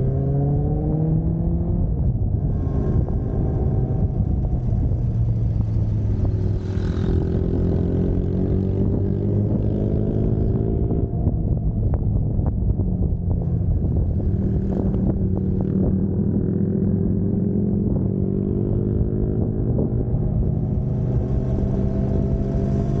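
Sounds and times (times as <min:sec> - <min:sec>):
motorcycle engine running: 0:02.6 - 0:23.0.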